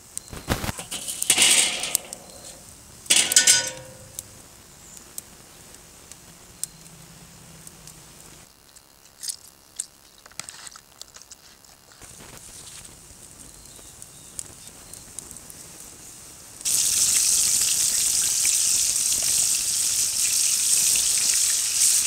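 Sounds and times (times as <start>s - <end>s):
steel grate rattling onto grill: 0.7s - 4.3s
cast iron skillet clanking: 0.7s - 4.4s.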